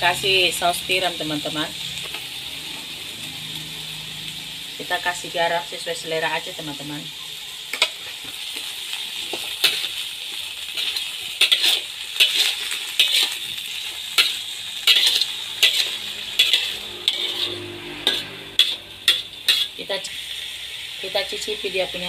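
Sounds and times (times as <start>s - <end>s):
pan sizzling: 0.0s - 22.0s
metal spatula scraping a wok: 7.6s - 21.5s.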